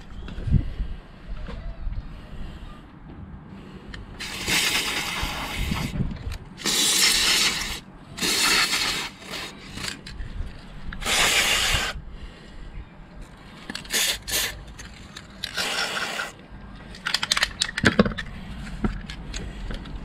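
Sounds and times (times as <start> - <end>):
aerosol can spraying: 4.2 - 5.9, 6.6 - 9.9, 11.0 - 12.0, 13.9 - 14.6, 15.5 - 16.4.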